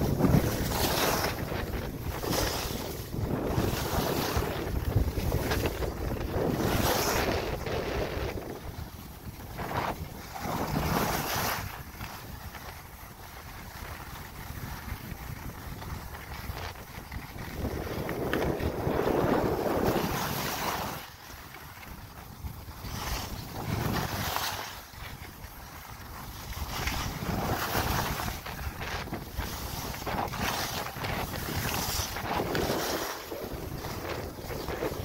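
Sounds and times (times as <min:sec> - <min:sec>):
sliding on snow: 0:00.0 - 0:35.0
wind buffeting microphone: 0:00.0 - 0:35.0.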